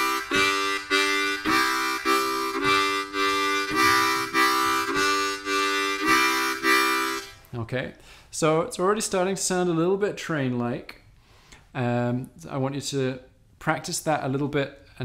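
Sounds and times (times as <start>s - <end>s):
harmonica chugging chords: 0.0s - 7.4s.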